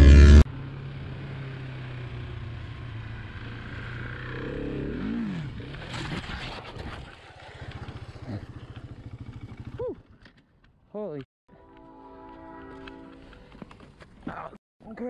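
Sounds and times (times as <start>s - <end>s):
dirt bike engine revving: 0.0s - 0.5s, 2.8s - 10.2s.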